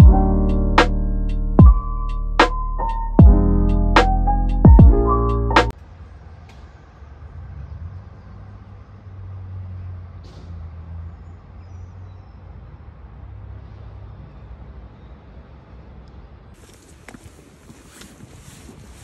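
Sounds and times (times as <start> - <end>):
distant road traffic rumble: 5.3 - 19.0.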